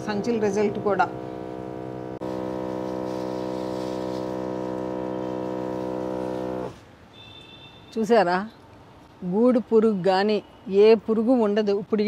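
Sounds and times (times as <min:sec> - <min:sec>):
sprayer motor pump humming: 0:00.0 - 0:06.8.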